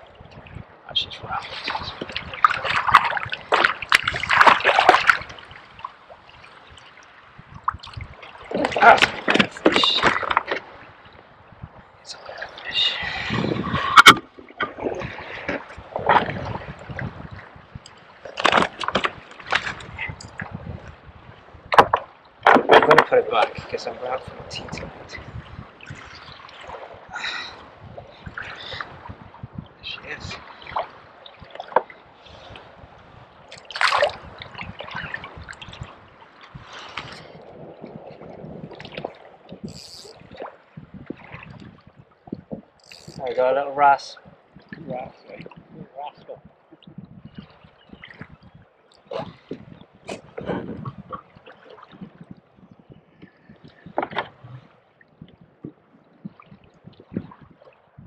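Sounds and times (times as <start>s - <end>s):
water sloshing against hull: 0.0s - 58.0s.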